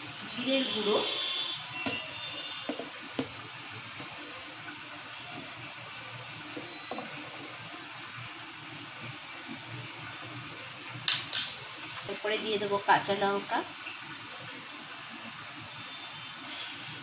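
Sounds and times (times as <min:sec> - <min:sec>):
spoon clicking on steel box: 0:11.1 - 0:11.7.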